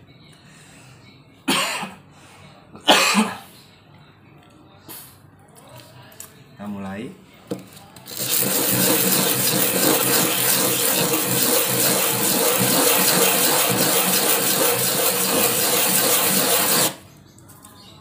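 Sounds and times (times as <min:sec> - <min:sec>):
wood rubbed on sandpaper: 0:08.2 - 0:17.0.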